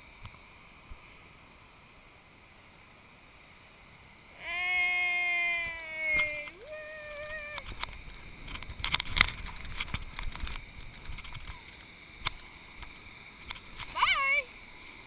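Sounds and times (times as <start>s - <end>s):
person yelling: 4.4s - 7.6s, 14.0s - 14.5s.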